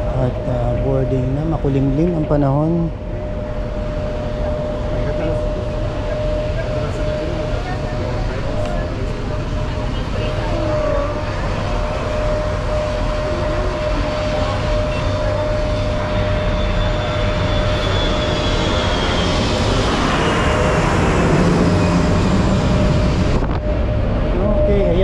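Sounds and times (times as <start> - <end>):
aircraft engines roaring: 0.0 - 25.0.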